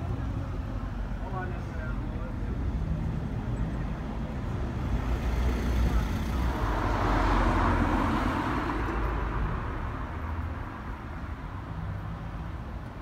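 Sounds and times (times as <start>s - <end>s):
low steady traffic rumble: 0.0s - 13.0s
car passing: 4.5s - 12.6s.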